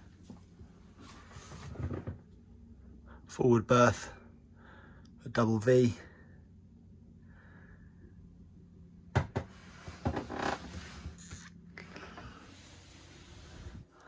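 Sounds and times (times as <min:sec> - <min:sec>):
wooden door creak: 0:09.9 - 0:12.4.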